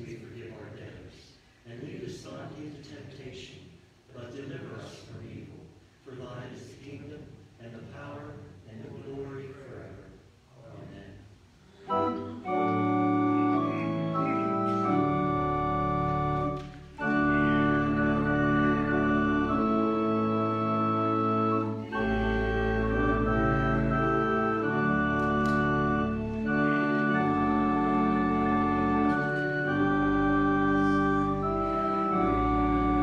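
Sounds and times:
organ playing sustained chords: 0:11.8 - 0:33.0
deep organ bass note: 0:11.9 - 0:33.0.

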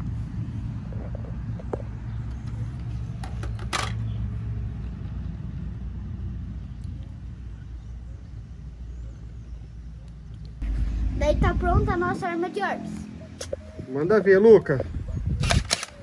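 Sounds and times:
low rumble: 0:04.1 - 0:13.9.

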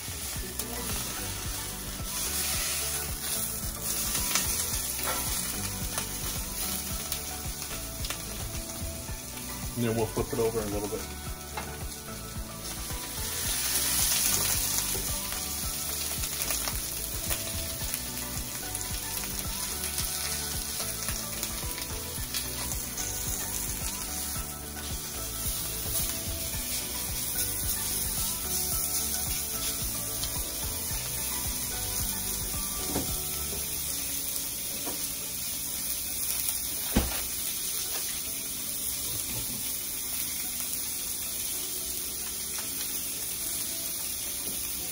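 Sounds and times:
steak sizzling in a pan: 0:00.0 - 0:44.9.

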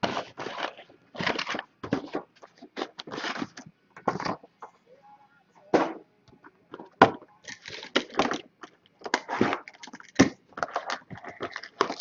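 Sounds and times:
cardboard and plastic wrap rustling: 0:00.0 - 0:04.5, 0:09.0 - 0:12.0.

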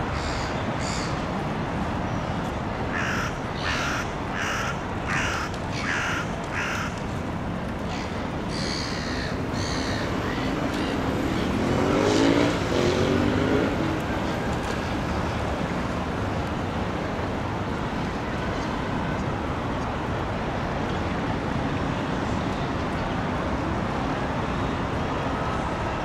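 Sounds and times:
city traffic noise: 0:00.0 - 0:26.0
harsh cawing bird calls: 0:00.2 - 0:01.1, 0:02.9 - 0:07.0, 0:07.9 - 0:10.6.

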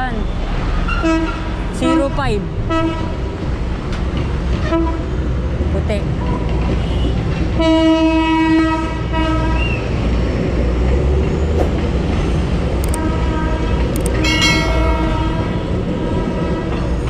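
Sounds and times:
train rumbling past: 0:00.4 - 0:17.0
train horn blasts: 0:02.7 - 0:03.2, 0:06.8 - 0:09.8, 0:12.9 - 0:16.9.

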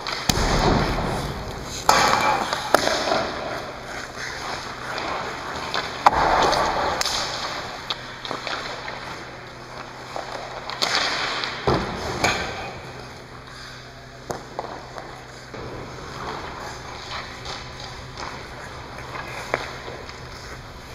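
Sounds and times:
hockey stick hitting puck: 0:00.0 - 0:12.8, 0:14.2 - 0:20.6
low thud: 0:00.3 - 0:02.1
skate blades scraping ice: 0:01.7 - 0:11.6, 0:13.6 - 0:20.9.

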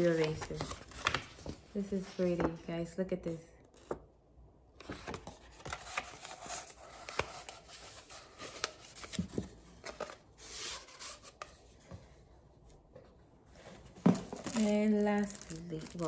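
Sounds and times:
paper and packaging rustling: 0:00.0 - 0:02.6, 0:04.8 - 0:11.8, 0:13.5 - 0:16.0.

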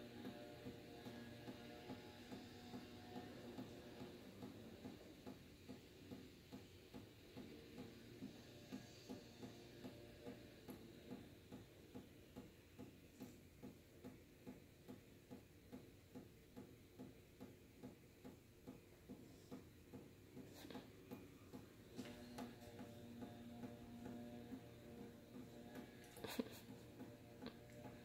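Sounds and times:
faint steady ticking: 0:00.0 - 0:28.0.

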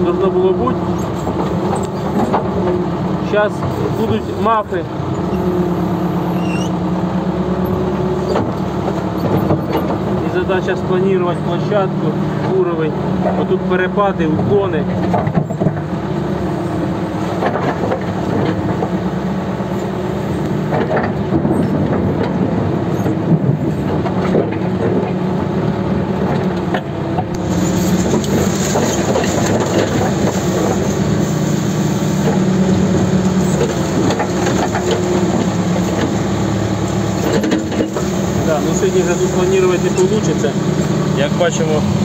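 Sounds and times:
bucket dragging mud: 0:00.0 - 0:06.8, 0:26.0 - 0:42.0
backhoe engine running: 0:00.0 - 0:42.0
knocks and scrapes: 0:00.6 - 0:02.8, 0:08.1 - 0:10.4, 0:14.9 - 0:25.2, 0:26.2 - 0:31.3, 0:32.2 - 0:41.0.

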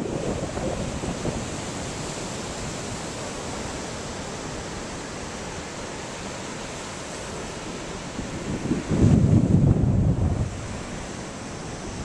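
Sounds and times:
ocean surf breaking on beach: 0:00.0 - 0:12.0.

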